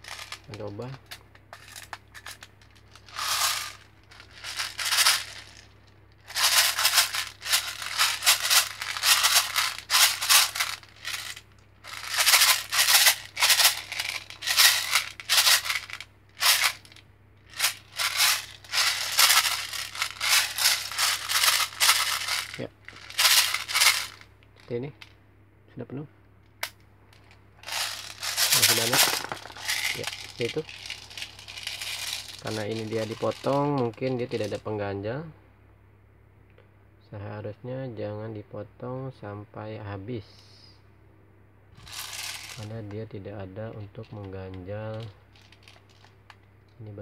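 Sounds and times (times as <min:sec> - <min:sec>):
bbs rattling in plastic magazine: 0:00.0 - 0:24.2, 0:27.1 - 0:34.6, 0:41.8 - 0:42.7, 0:44.9 - 0:46.4.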